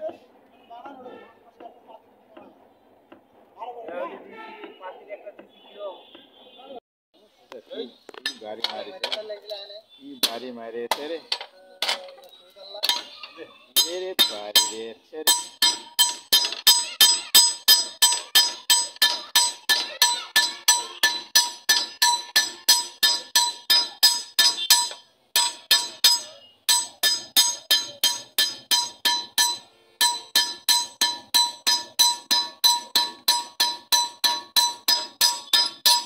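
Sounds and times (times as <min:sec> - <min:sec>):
hammer striking anvil: 0:12.8 - 0:13.1, 0:13.8 - 0:36.0.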